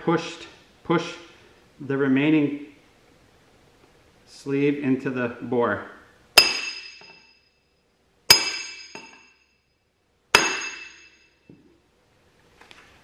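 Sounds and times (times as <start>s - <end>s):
hammer on steel plate: 6.4s - 7.4s, 8.3s - 9.4s, 10.4s - 11.2s.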